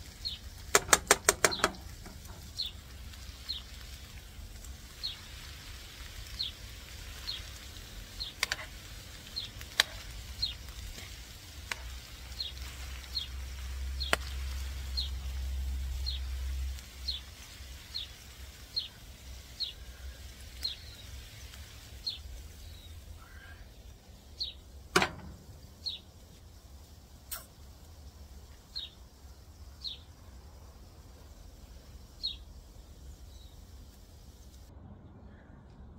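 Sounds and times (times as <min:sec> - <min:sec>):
bird chirping: 0:00.2 - 0:02.8, 0:24.3 - 0:26.2, 0:28.6 - 0:30.2
tongs clicking on frying pan: 0:00.7 - 0:02.5, 0:09.6 - 0:10.1
low rumble: 0:34.6 - 0:35.9.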